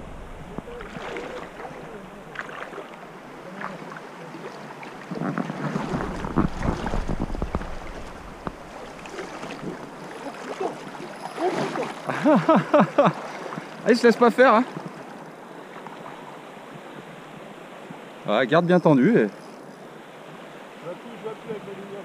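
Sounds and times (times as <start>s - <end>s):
wind rumbling on microphone: 0.0s - 3.5s, 4.9s - 10.1s
river water lapping and splashing: 0.0s - 22.0s.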